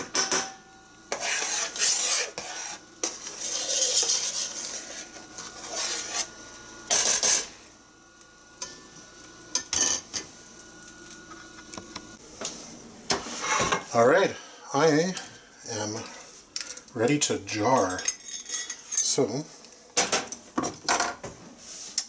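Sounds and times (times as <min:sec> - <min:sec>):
metal spoon scraping a pot: 0:01.1 - 0:07.5.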